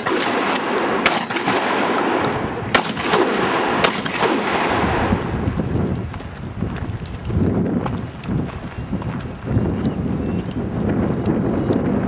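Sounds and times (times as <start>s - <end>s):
shotgun shots: 0.0s - 5.3s
people scuffling on foot: 5.0s - 12.0s.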